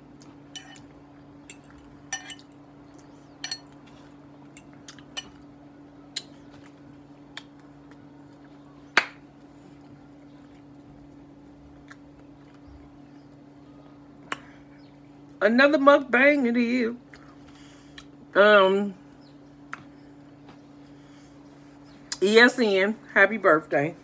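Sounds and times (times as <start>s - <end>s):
steady low hum: 0.0s - 24.0s
fork clinking on glass dish: 0.6s - 0.9s.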